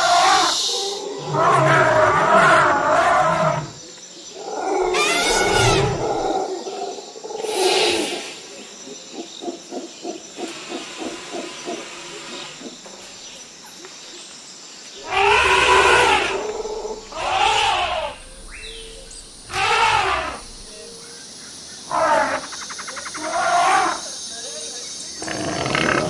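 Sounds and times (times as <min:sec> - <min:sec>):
elephant roaring: 0:04.4 - 0:06.4, 0:15.0 - 0:20.8.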